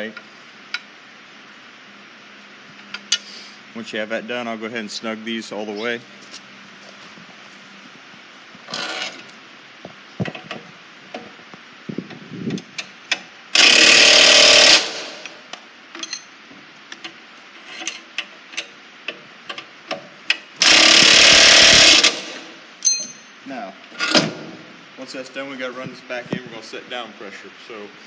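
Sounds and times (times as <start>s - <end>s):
impact wrench hammering: 13.1s - 15.4s, 20.3s - 23.4s.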